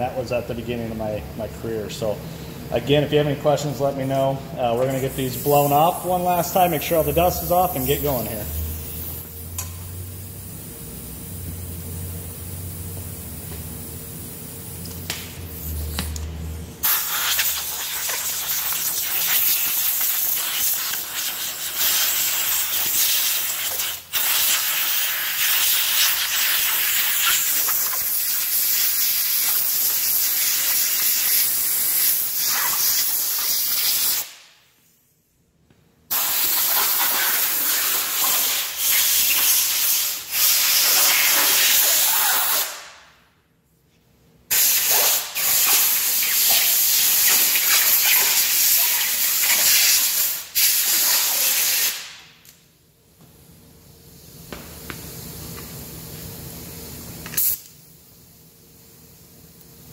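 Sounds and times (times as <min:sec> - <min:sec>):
compressed air hissing from nozzle: 0:04.9 - 0:10.4, 0:15.4 - 0:16.1, 0:16.8 - 0:35.0, 0:36.1 - 0:42.9, 0:44.5 - 0:52.2, 0:57.2 - 0:59.9.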